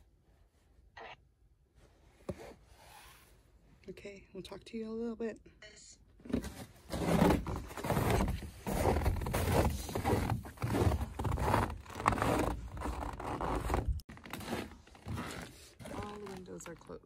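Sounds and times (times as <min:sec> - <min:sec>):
footsteps crunching on snow: 0:06.9 - 0:16.3.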